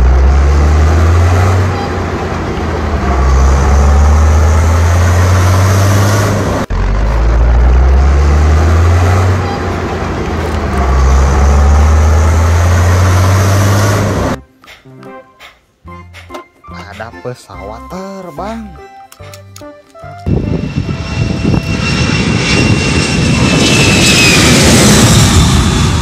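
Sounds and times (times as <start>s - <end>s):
vehicle engine revving: 0.0s - 14.4s.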